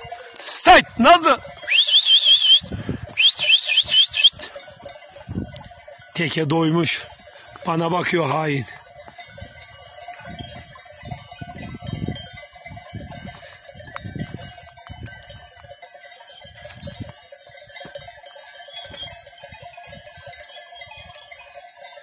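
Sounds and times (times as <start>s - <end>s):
livestock bells clinking: 0.0s - 22.0s.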